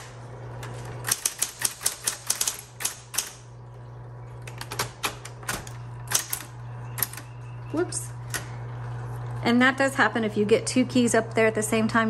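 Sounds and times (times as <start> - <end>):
typewriter motor hum: 0.0 - 3.5, 4.4 - 8.6
typewriter type-bar strikes: 1.1 - 3.4.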